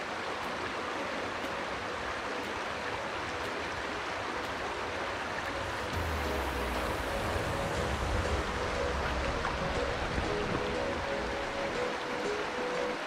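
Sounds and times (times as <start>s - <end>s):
river water rushing: 0.0s - 13.0s
low rumble: 6.0s - 11.3s.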